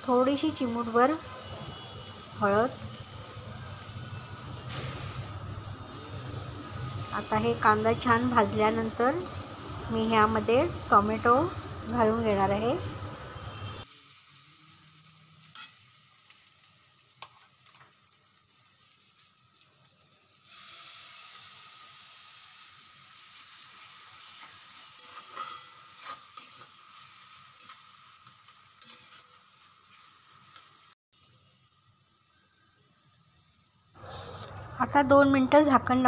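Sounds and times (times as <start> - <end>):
vegetables sizzling in oil: 0.0 - 36.0
spatula scraping pan: 24.3 - 27.9, 28.8 - 30.1.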